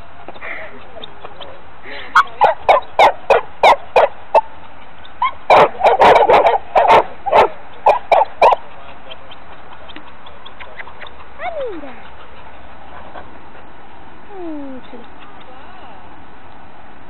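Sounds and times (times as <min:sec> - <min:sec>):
dog barking: 0:02.2 - 0:04.5, 0:05.5 - 0:08.6.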